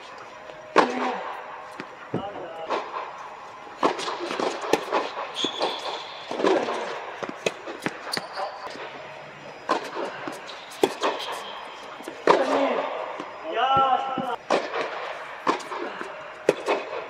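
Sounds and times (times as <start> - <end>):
tennis ball bouncing: 3.8 - 8.4, 9.6 - 11.4
racquets striking tennis ball: 3.8 - 8.7, 9.6 - 17.0.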